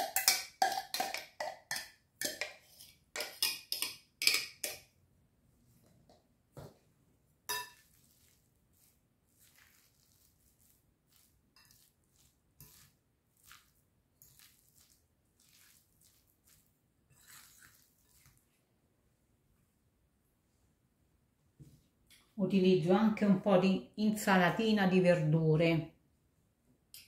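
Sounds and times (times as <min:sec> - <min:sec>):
spoon clinking on glass bowl: 0:00.0 - 0:04.8, 0:07.5 - 0:07.9
spoon mixing food squelching: 0:00.0 - 0:04.9, 0:07.4 - 0:18.6.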